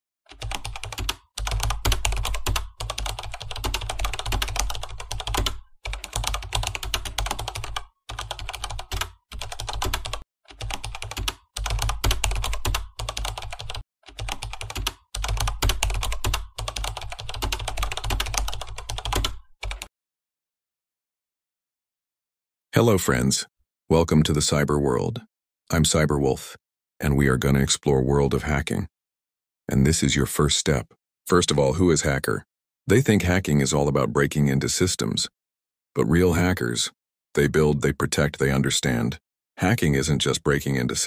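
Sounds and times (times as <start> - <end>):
rapid keyboard typing: 0.3 - 19.9.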